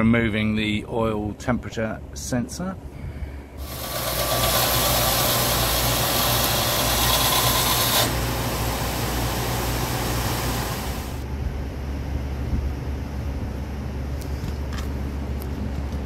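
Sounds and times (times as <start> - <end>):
belt sander grinding metal: 3.6 - 11.2
sander motor humming: 3.6 - 11.2.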